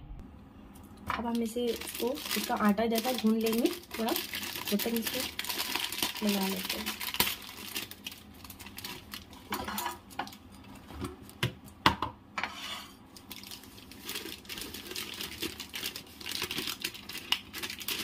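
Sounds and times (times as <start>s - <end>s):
plastic pouch crinkling: 1.3s - 10.8s, 13.1s - 18.0s.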